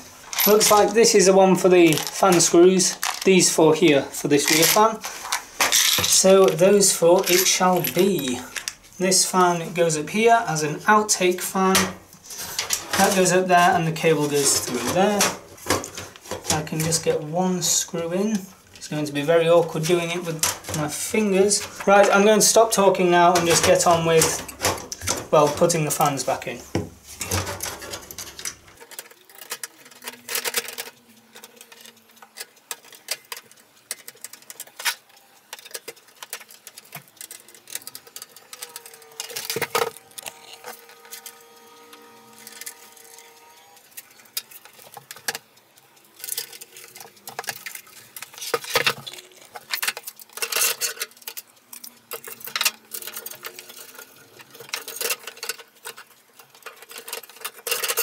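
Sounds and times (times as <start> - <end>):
screwdriver clicks and rattles: 27.6 - 43.2, 44.0 - 58.0.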